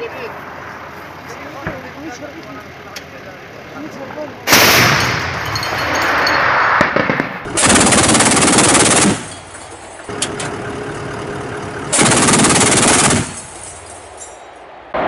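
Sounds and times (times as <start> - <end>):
automatic weapon fire: 4.5 - 5.4, 6.8 - 9.3, 11.9 - 13.6
sharp crack: 4.5 - 5.4, 6.5 - 9.4.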